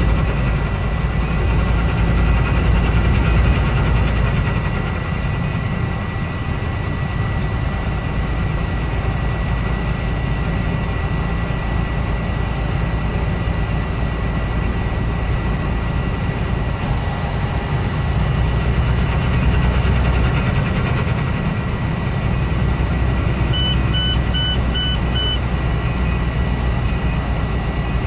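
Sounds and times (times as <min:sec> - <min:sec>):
road noise inside cab: 0:00.0 - 0:28.0
truck engine rumble: 0:00.0 - 0:28.0
electronic alert beeps: 0:23.5 - 0:25.5.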